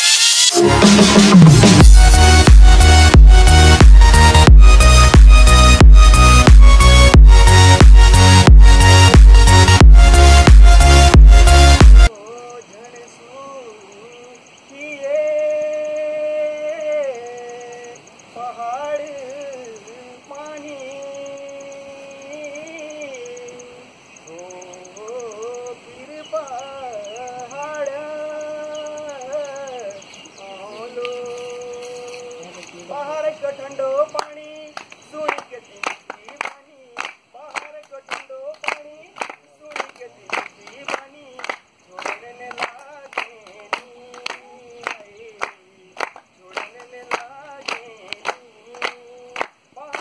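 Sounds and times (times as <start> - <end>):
man singing folk song: 12.0 - 50.0
audience clapping in time: 34.2 - 50.0.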